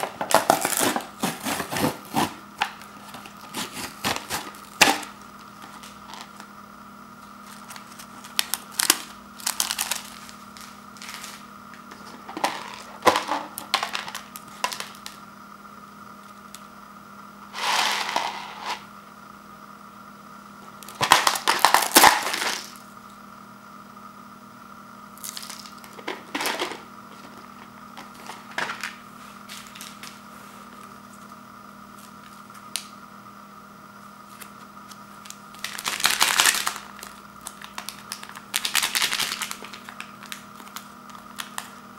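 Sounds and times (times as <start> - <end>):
faint steady hum: 0.0 - 41.9
sachets crinkling and rustling: 7.4 - 11.5, 35.2 - 41.8.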